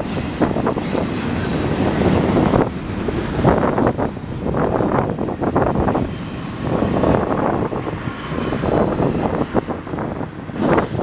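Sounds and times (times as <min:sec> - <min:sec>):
freight train wheels rumbling: 0:00.0 - 0:11.0
high wheel squeal: 0:03.7 - 0:11.0.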